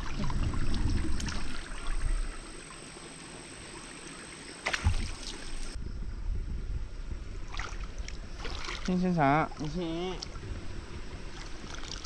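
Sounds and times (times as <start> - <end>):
water splash: 0.0 - 2.8, 3.7 - 5.8, 7.5 - 10.4, 11.3 - 12.0
water sloshing from wading: 0.0 - 5.8, 7.4 - 12.0.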